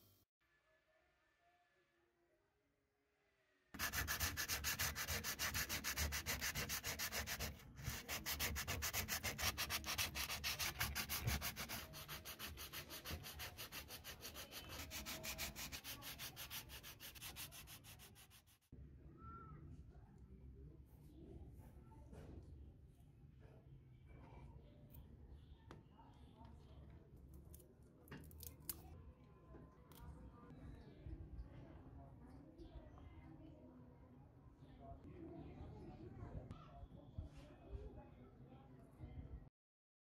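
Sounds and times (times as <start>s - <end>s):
rapid rubbing strokes: 3.8s - 18.7s.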